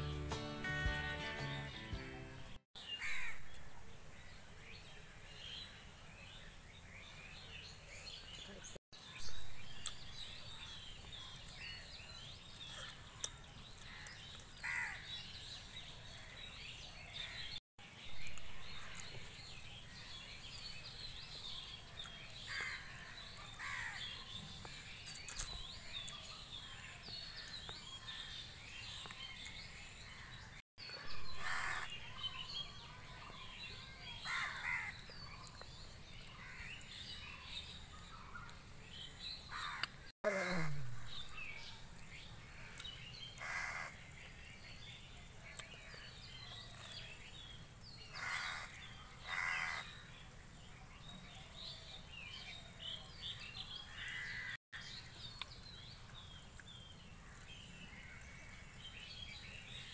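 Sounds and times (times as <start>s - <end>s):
birds chirping and calling: 7.0s - 50.3s.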